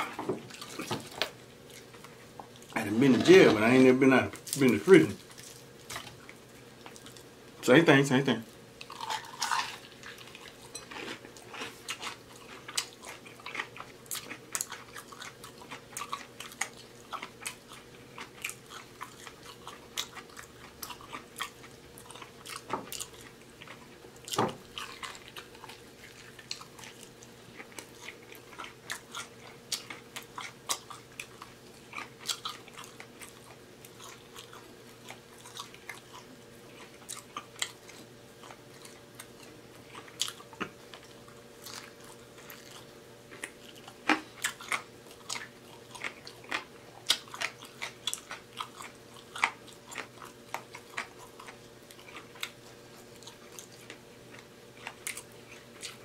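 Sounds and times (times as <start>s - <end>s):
biting and chewing food: 0.0s - 7.3s, 8.7s - 56.0s
faint steady hum: 0.0s - 56.0s.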